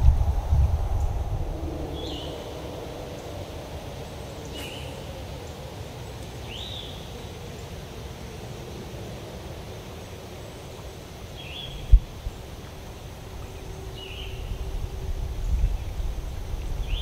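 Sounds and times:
low rumbling noise: 0:00.0 - 0:06.7, 0:11.6 - 0:17.0
bird rising call: 0:01.0 - 0:07.0.

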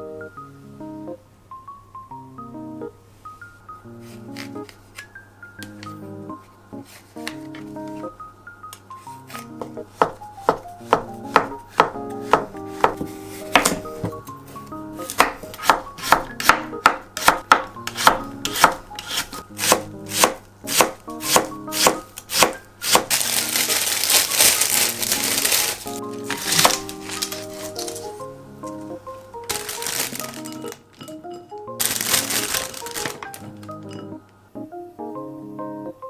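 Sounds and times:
knife cutting on wooden board: 0:17.2 - 0:23.1, 0:26.3 - 0:28.1
plastic wrap crinkling: 0:22.9 - 0:28.2, 0:29.2 - 0:31.1, 0:31.8 - 0:33.8.

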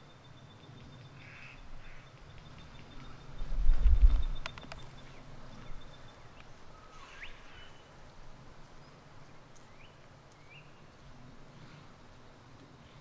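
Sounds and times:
forest ambience: 0:00.0 - 0:13.0.

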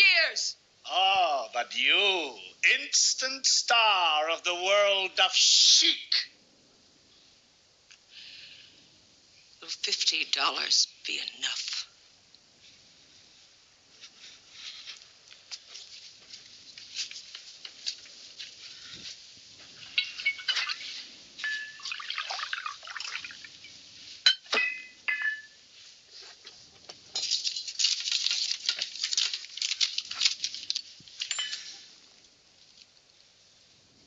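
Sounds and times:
glasses clinking on a glass tray: 0:19.9 - 0:20.8, 0:21.4 - 0:22.0, 0:24.3 - 0:25.6, 0:31.3 - 0:31.8
liquor pouring into a glass: 0:21.5 - 0:23.6.

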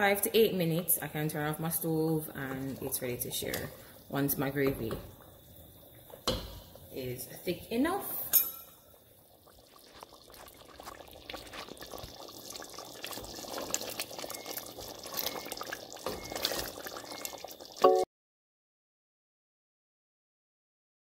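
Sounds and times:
thick gravy bubbling: 0:01.1 - 0:08.2, 0:08.8 - 0:17.8.

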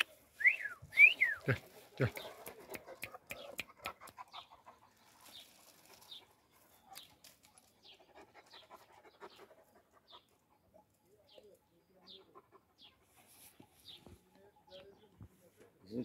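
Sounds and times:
dog panting: 0:01.8 - 0:05.2, 0:06.2 - 0:11.0, 0:11.9 - 0:13.7.

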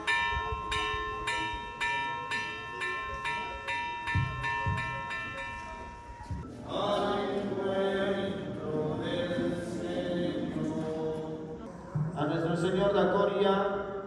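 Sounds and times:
congregation singing a hymn: 0:06.4 - 0:11.7.

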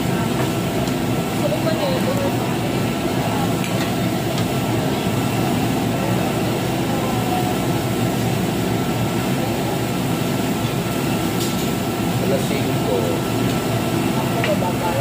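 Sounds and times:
faint voices: 0:00.0 - 0:10.1, 0:14.0 - 0:15.0
exhaust hood rushing drone: 0:00.0 - 0:15.0.

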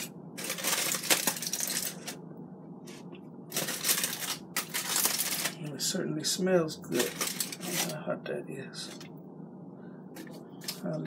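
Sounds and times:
aluminium foil crinkling: 0:00.0 - 0:02.2, 0:03.5 - 0:05.6, 0:06.9 - 0:08.0.

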